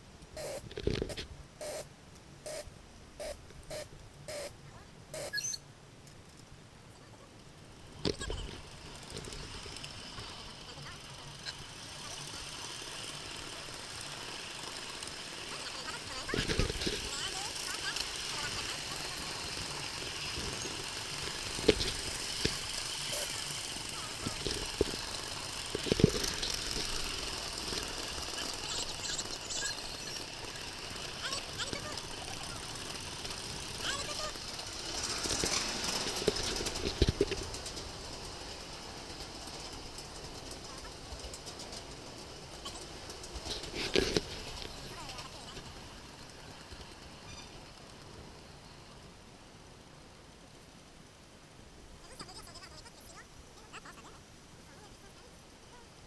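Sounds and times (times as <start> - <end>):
brief high squeak: 5.2 - 5.6
steam locomotive chuffing: 7.8 - 49.1.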